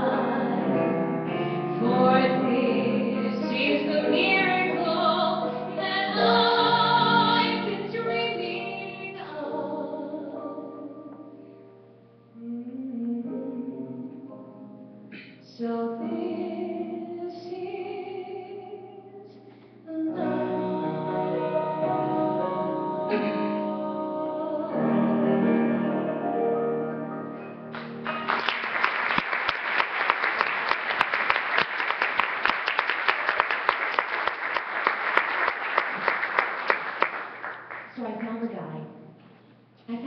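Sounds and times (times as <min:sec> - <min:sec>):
woman singing a slow ballad: 0:01.8 - 0:11.4, 0:12.3 - 0:14.6, 0:15.2 - 0:26.5
audience applause: 0:27.7 - 0:38.0.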